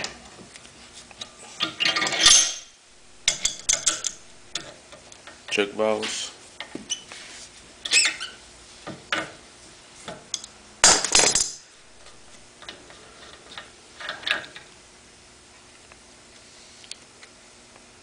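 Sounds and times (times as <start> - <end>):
wrench clinking on metal: 2.0 - 4.7, 10.3 - 12.3
wrench clattering on workbench: 3.3 - 4.7, 10.4 - 12.2.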